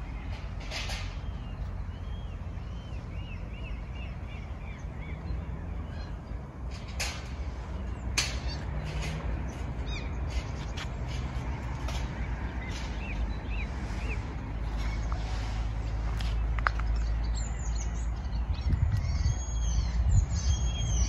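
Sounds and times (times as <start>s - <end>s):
bird chirping: 0.0s - 6.4s, 16.3s - 21.0s.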